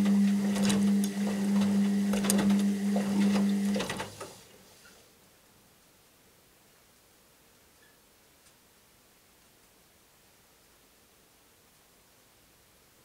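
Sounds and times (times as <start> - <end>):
washing machine drum turning: 0.0 - 4.4.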